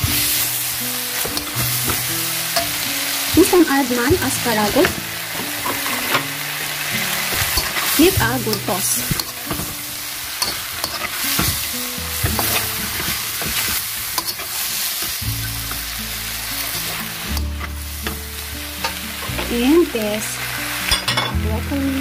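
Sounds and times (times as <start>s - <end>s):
food sizzling in a hot pan: 0.0s - 22.0s
utensil scraping a pan: 4.7s - 9.8s, 10.4s - 15.8s.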